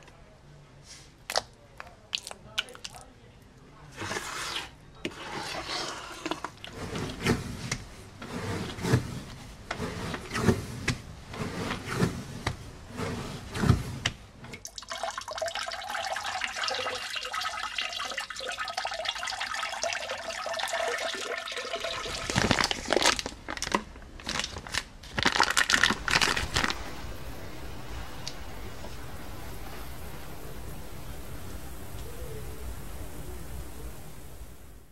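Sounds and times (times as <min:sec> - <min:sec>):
wet clay squelching: 0:00.9 - 0:03.1
clay fizzing and crackling: 0:00.9 - 0:34.9
glaze pouring and splashing: 0:02.1 - 0:03.1, 0:14.6 - 0:23.4, 0:25.5 - 0:32.0.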